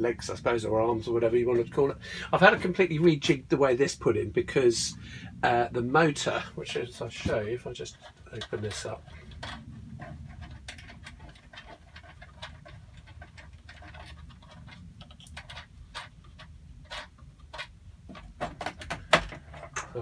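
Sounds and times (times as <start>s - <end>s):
quiet low hum: 0.0s - 20.0s
clicks and scrapes of plastic fasteners: 7.0s - 20.0s.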